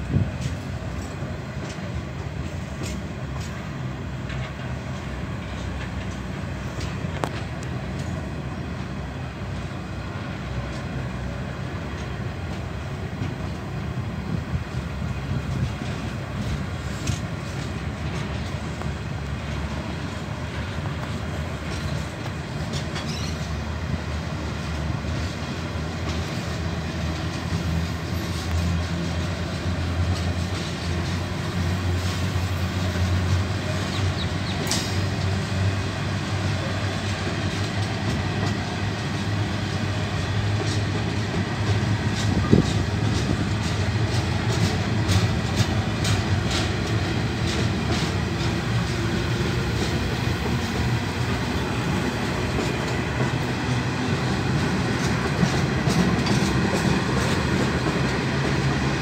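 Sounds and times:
freight train wheels rumbling: 0.0s - 59.0s
wheels clicking over rail joints: 0.1s - 9.0s, 10.4s - 59.0s.

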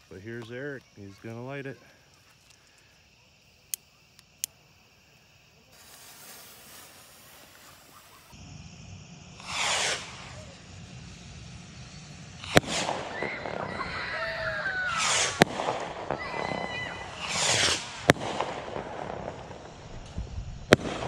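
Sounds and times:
rocket bursts popping: 5.7s - 21.0s
bottle rocket whoosh: 9.4s - 10.8s, 12.4s - 18.5s.

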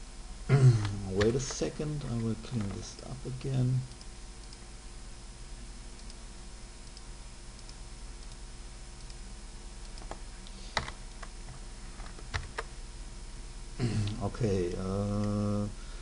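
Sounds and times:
low electrical hum: 0.0s - 16.0s
keyboard and mouse clicks: 2.5s - 3.1s, 9.8s - 10.2s.

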